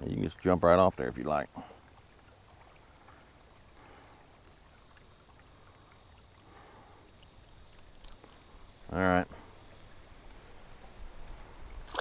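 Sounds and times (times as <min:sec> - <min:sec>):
water lapping against boat hull: 0:00.0 - 0:08.5.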